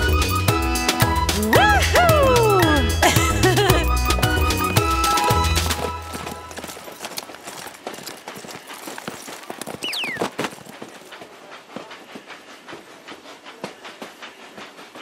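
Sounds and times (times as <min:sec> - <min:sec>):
cartoon hooves clip-clopping: 0:00.0 - 0:15.0.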